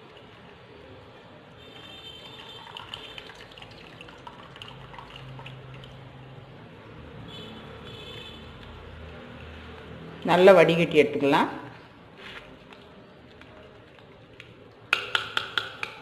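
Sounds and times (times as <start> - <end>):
milk trickling and dripping: 0.0 - 7.1.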